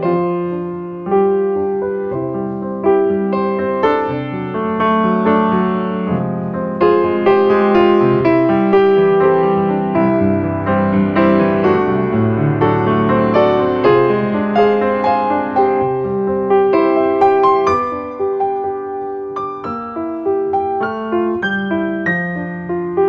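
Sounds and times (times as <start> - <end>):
piano music: 0.0 - 23.0.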